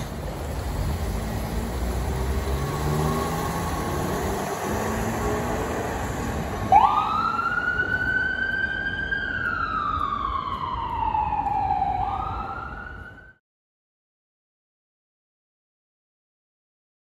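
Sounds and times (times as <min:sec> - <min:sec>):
traffic and engine noise: 0:00.0 - 0:13.4
ambulance siren wailing: 0:06.3 - 0:13.4.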